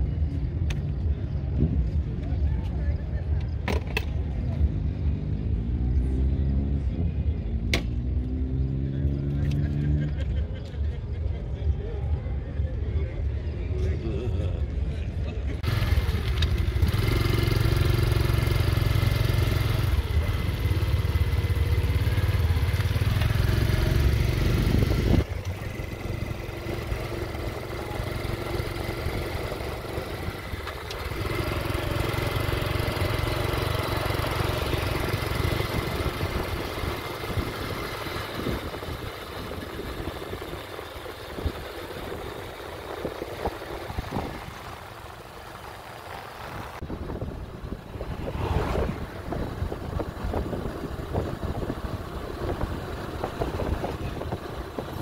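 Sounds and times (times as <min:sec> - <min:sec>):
car engine running: 0:17.7 - 0:55.0
heavy low rumble: 0:43.8 - 0:54.8.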